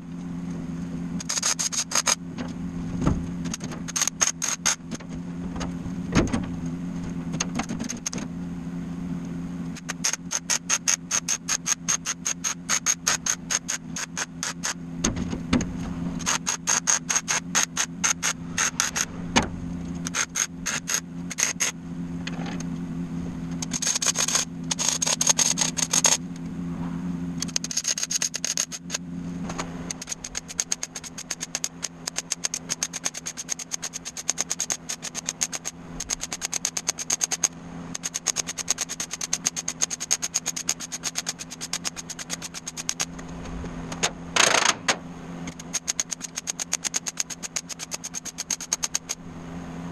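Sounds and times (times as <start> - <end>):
steady hum: 0.0 - 49.9
welding crackling clicks: 1.2 - 2.5, 3.4 - 5.1, 7.3 - 8.2, 9.7 - 14.8, 16.2 - 19.1, 19.8 - 22.8, 23.5 - 26.4, 27.4 - 49.2.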